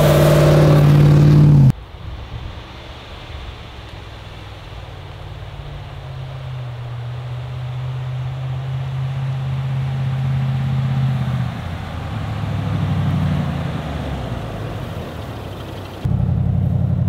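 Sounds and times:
car engine driving past: 0:04.7 - 0:17.0.

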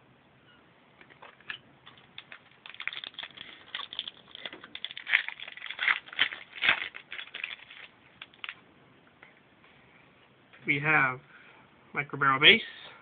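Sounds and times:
card pack wrapper tearing: 0:01.9 - 0:08.6.

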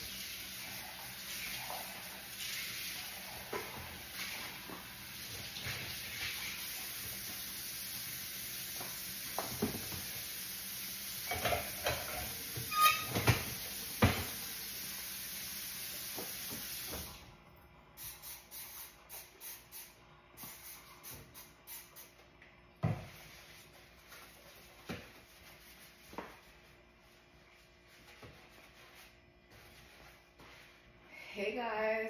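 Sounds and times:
faucet running: 0:00.0 - 0:17.2
dishes clinking and knocking: 0:11.3 - 0:14.3.

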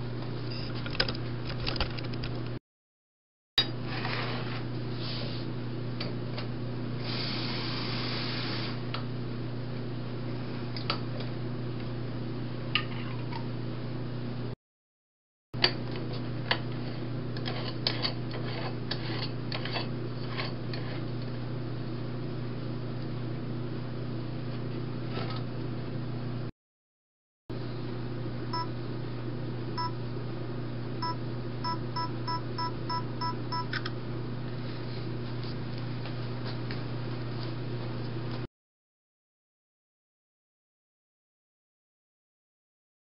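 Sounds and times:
steady low hum: 0:27.5 - 0:38.5.

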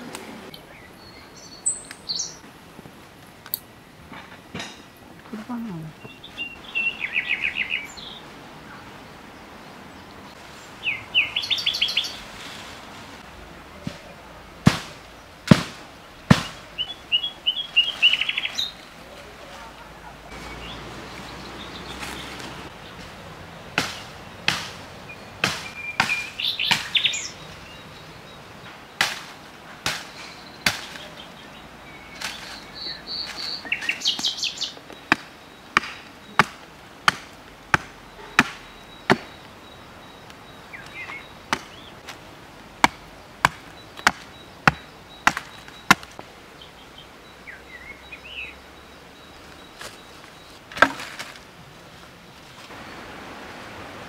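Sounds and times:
small birds chirping: 0:00.0 - 0:02.5, 0:04.4 - 0:54.0
sharp chopping blows: 0:14.6 - 0:16.7, 0:23.7 - 0:24.8, 0:25.4 - 0:27.1, 0:29.0 - 0:31.1, 0:35.1 - 0:39.4, 0:42.8 - 0:46.2.

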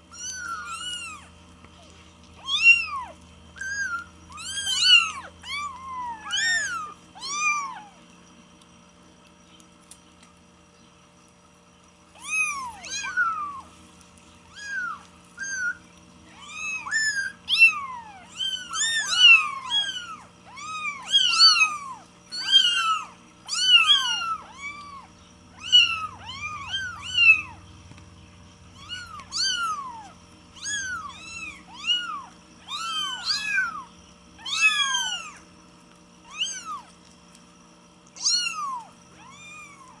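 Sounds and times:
kittens mewing: 0:00.0 - 0:01.5, 0:02.4 - 0:08.1, 0:12.1 - 0:13.7, 0:14.4 - 0:27.6, 0:28.7 - 0:35.4, 0:38.2 - 0:40.0.

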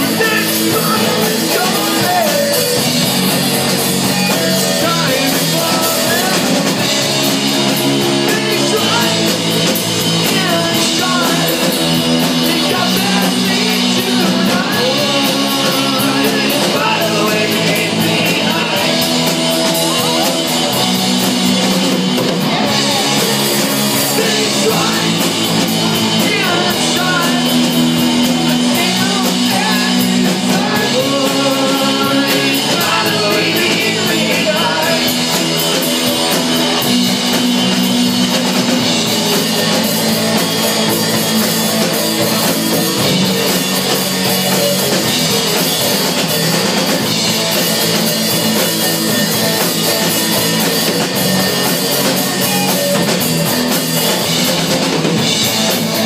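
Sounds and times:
person singing: 0:00.0 - 0:20.9, 0:22.2 - 0:37.3
bass guitar: 0:00.0 - 0:56.0
drum kit: 0:00.0 - 0:56.0
electric guitar: 0:00.0 - 0:56.0.

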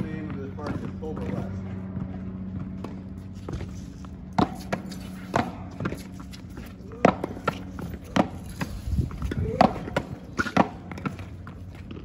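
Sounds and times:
paddle striking ball: 0:07.0 - 0:11.3.

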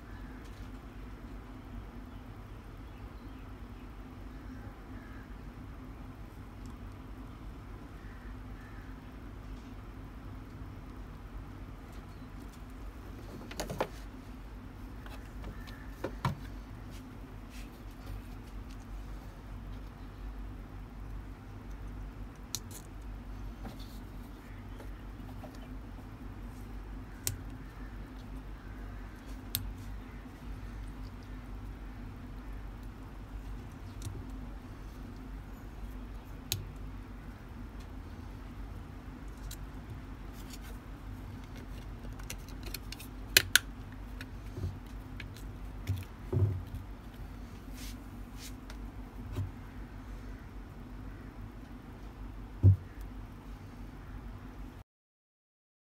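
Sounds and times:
steady low hum: 0:00.0 - 0:54.8
sharp plastic clicks: 0:41.4 - 0:46.1.

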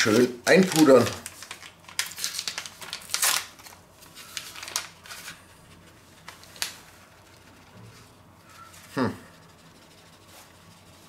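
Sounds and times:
paper sachet crinkling and tapping: 0:00.0 - 0:05.4, 0:06.2 - 0:07.0.

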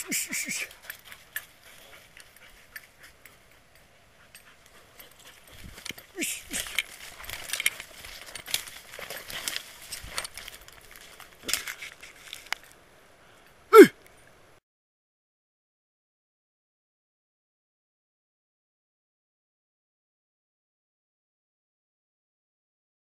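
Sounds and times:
footsteps crackling through dry leaves: 0:06.4 - 0:12.5.

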